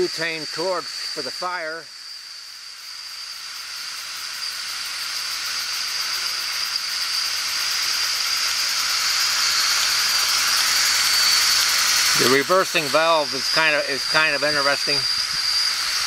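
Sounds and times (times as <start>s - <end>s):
exhaust steam hissing: 0.0s - 16.0s
model steam engine running fast: 0.0s - 16.0s.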